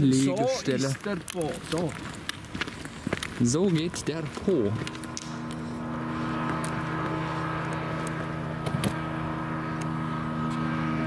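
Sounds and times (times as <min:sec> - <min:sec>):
outboard motor running: 0:03.2 - 0:11.0.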